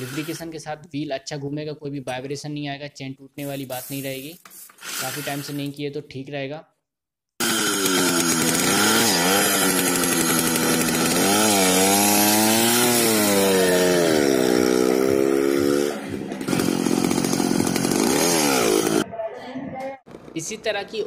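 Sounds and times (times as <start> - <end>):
two-stroke engine revving: 0.0 - 0.5, 7.4 - 19.0.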